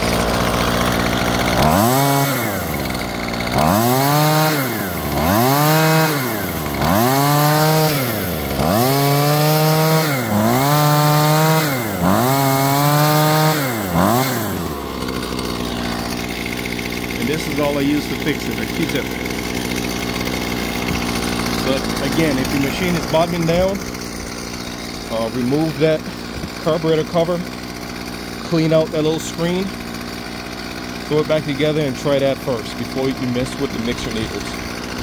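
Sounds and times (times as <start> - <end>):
string trimmer engine revving: 0.0 - 35.0.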